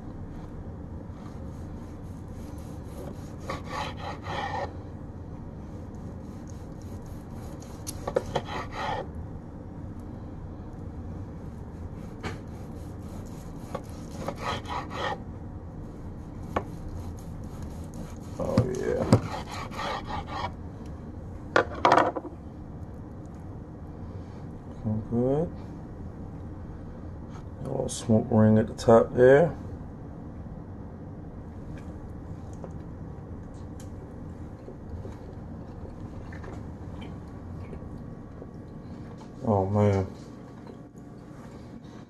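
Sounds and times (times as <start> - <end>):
knife sawing through meat: 1.4 - 4.7, 6.1 - 9.1, 11.8 - 15.2, 16.1 - 20.6.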